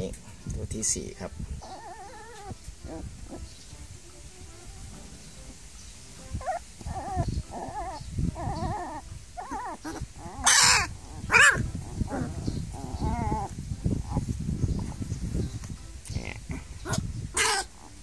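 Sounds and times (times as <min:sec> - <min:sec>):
puppies whimpering and crying: 0:01.6 - 0:03.6, 0:06.2 - 0:15.3, 0:16.7 - 0:18.0.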